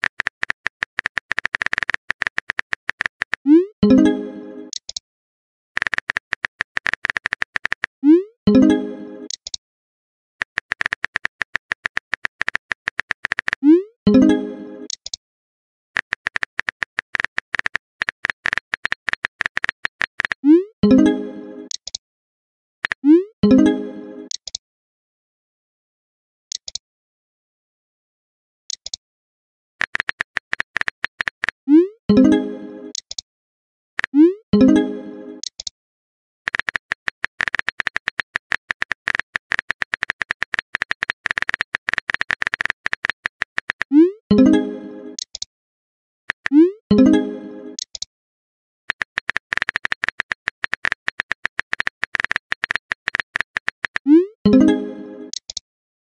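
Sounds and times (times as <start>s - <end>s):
phone keyboard key clicks: 0.0s - 3.4s, 5.8s - 7.9s, 10.4s - 13.6s, 16.0s - 20.4s, 29.8s - 31.6s, 32.9s - 33.2s, 36.5s - 43.9s, 45.2s - 45.5s, 48.9s - 54.1s, 55.3s - 55.6s.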